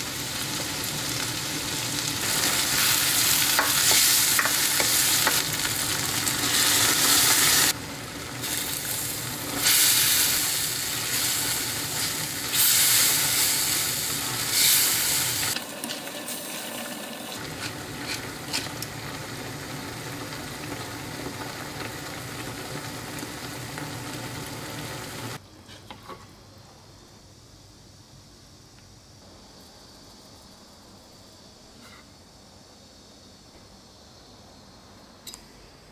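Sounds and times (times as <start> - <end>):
food sizzling in a frying pan: 0.0 - 25.4.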